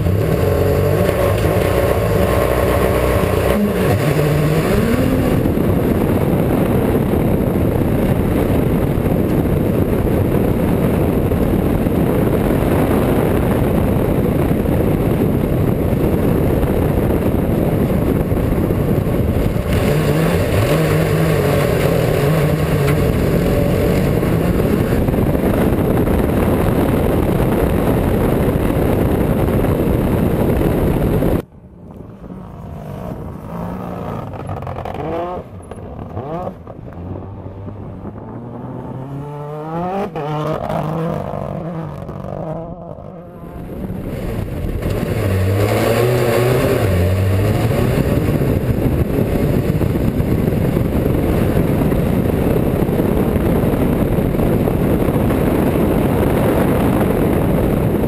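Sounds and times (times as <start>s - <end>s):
rally car engine revving: 0.0s - 31.4s, 32.0s - 58.0s
loud rushing noise: 0.0s - 35.5s.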